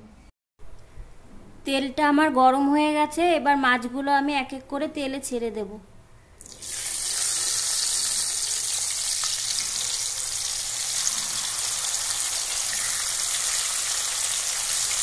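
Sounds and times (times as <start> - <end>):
fish sizzling in hot oil: 6.6 - 15.0.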